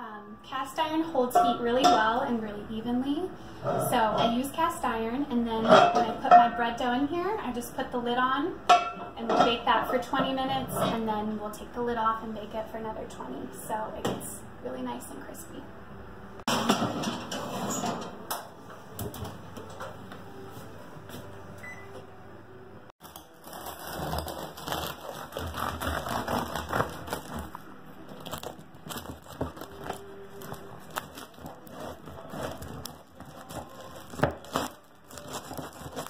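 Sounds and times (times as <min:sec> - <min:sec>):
bread knife sawing crusty bread: 0:23.1 - 0:27.5, 0:30.9 - 0:36.0.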